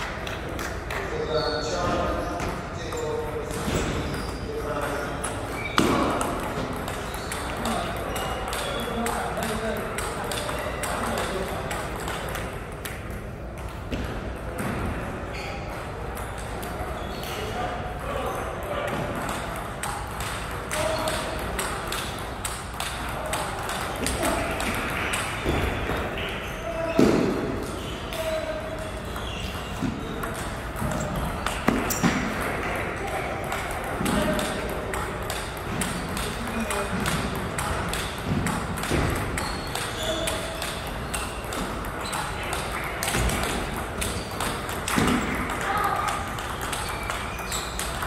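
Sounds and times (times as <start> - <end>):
faint voices in echoing hall: 0.0 - 48.0
table tennis balls clicking: 2.5 - 14.6, 15.6 - 26.4, 27.6 - 48.0.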